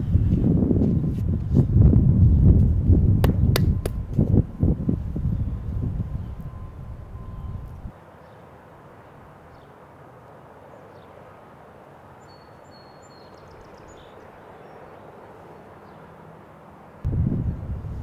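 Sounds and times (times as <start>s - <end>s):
wind rumble on microphone: 0.0s - 7.9s, 17.0s - 18.0s
faint bird chirps: 12.2s - 14.9s.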